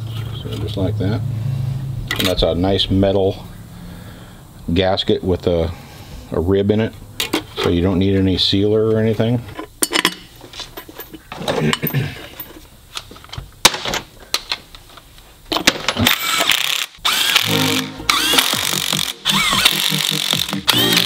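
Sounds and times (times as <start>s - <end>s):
cordless electric ratchet whining: 16.0s - 21.0s.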